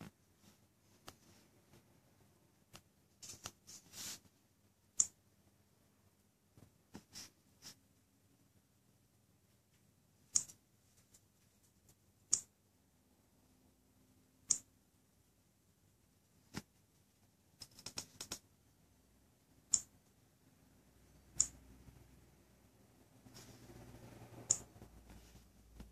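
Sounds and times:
finger tapping touchscreen: 0:10.3 - 0:10.5, 0:21.4 - 0:21.6, 0:24.4 - 0:24.7.

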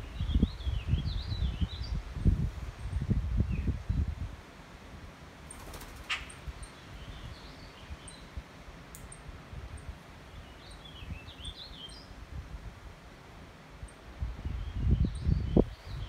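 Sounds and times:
songbirds chirping: 0:00.0 - 0:04.2, 0:05.4 - 0:12.4, 0:13.4 - 0:16.0
sharp bird call: 0:06.0 - 0:06.4.

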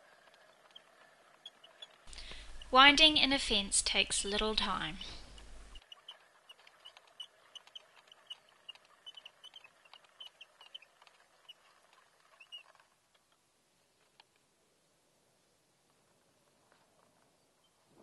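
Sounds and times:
spool winding squeaky ticking: 0:00.0 - 0:02.8, 0:05.2 - 0:13.3.

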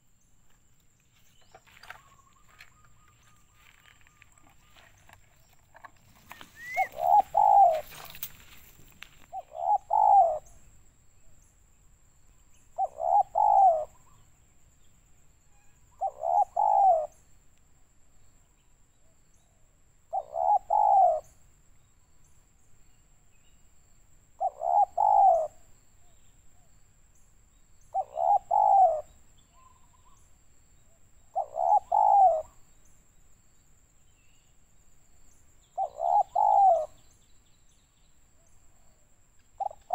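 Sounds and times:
dove cooing: 0:01.7 - 0:08.5, 0:09.2 - 0:10.6, 0:12.8 - 0:14.2, 0:16.0 - 0:17.2, 0:20.1 - 0:21.4, 0:24.4 - 0:25.7, 0:27.9 - 0:30.2, 0:31.3 - 0:32.6, 0:35.8 - 0:37.0, 0:39.6 - 0:39.9.

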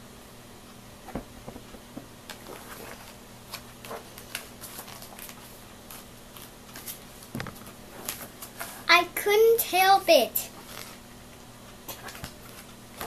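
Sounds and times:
faint steady hum: 0:00.0 - 0:13.0
book pages rustling: 0:02.3 - 0:08.8, 0:10.6 - 0:11.0, 0:12.0 - 0:13.0.

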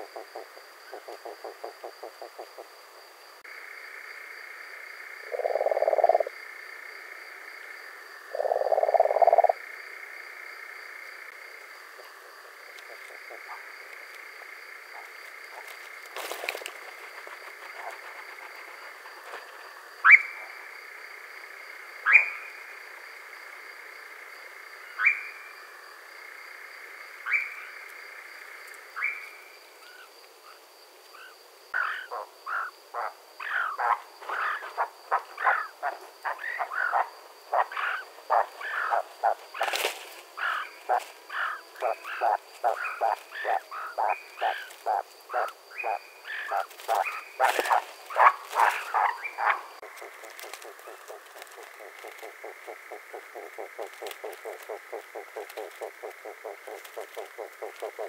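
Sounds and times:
dense series of short bird calls: 0:05.2 - 0:06.3, 0:29.0 - 0:58.0
nightjar churring: 0:08.4 - 0:09.6.

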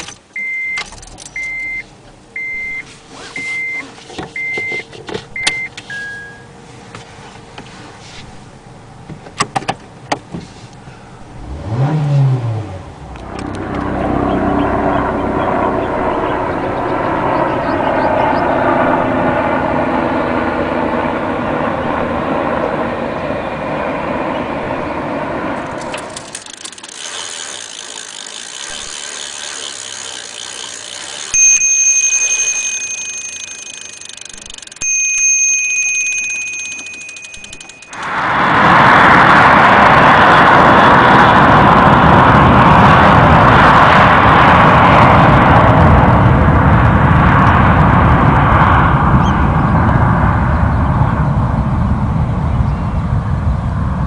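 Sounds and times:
steady vehicle noise: 0:00.0 - 0:54.0
long ringing tones: 0:03.4 - 0:06.6, 0:25.6 - 0:38.8
rising and falling hum: 0:10.8 - 0:54.0
clicks: 0:25.6 - 0:38.2.

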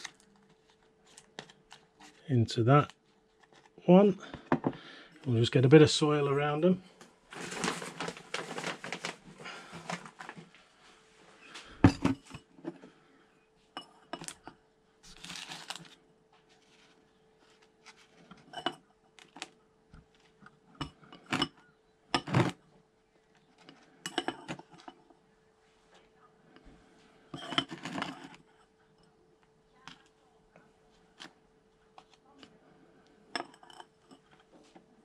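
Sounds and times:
faint steady hum: 0:00.0 - 0:35.0
rustling compost: 0:07.3 - 0:10.5, 0:15.0 - 0:18.2.

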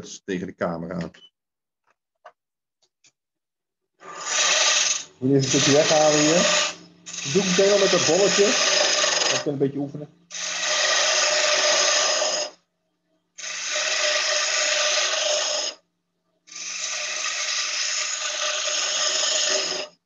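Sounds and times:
gouge shaving wood on lathe: 0:04.0 - 0:09.5, 0:10.3 - 0:12.6, 0:13.4 - 0:15.8, 0:16.5 - 0:19.9.

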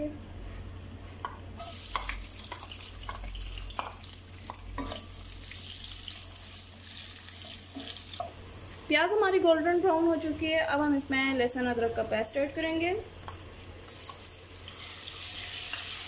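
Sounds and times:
onions sizzling in oil: 0:01.6 - 0:10.4, 0:13.8 - 0:16.0.

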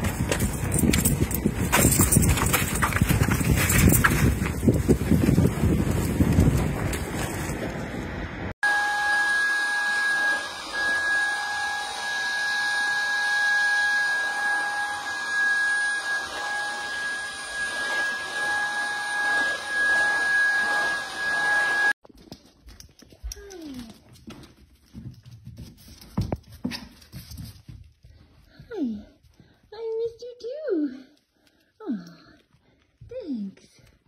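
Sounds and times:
vacuum cleaner motor whine: 0:08.6 - 0:22.0.

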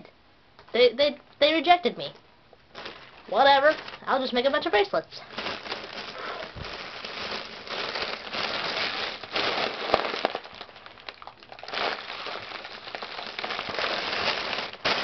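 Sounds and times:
foil balloon crinkling: 0:02.7 - 0:15.0.

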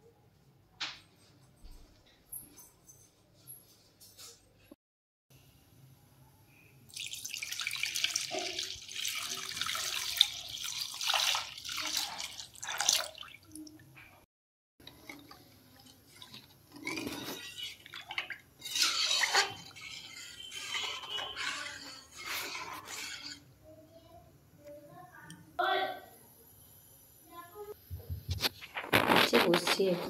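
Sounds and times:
milk sloshing as spatula stirs: 0:06.9 - 0:13.6, 0:14.8 - 0:23.6
milk pouring into metal pan: 0:06.9 - 0:13.8.

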